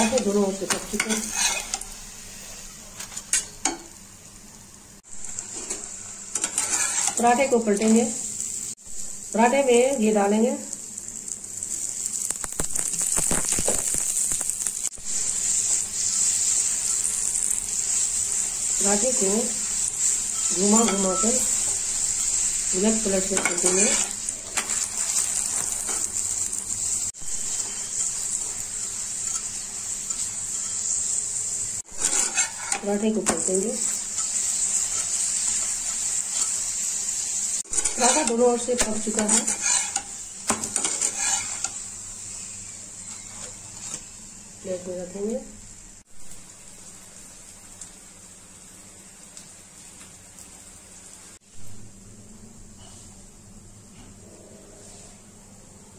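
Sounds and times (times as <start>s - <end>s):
metal spatula scraping: 0.0s - 3.8s, 5.3s - 8.0s, 15.4s - 26.2s, 27.5s - 31.1s, 31.9s - 36.8s, 37.7s - 41.8s
flatbread sizzling in a pan: 0.0s - 54.2s.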